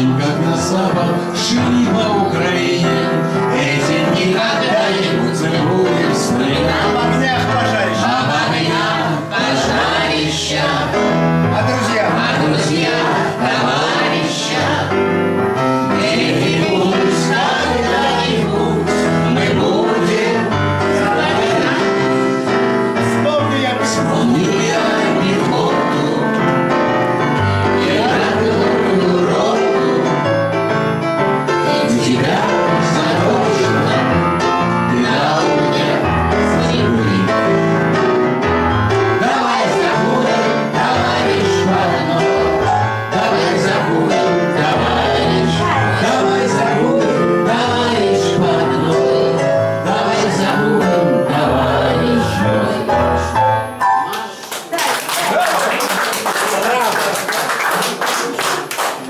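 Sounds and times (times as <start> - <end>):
man singing: 0.0 - 8.6, 18.4 - 22.2, 23.0 - 26.6, 27.8 - 30.5, 31.6 - 37.8, 43.1 - 53.3
other voices singing along: 0.0 - 30.6, 31.5 - 54.4
electronic keyboard: 0.0 - 54.5.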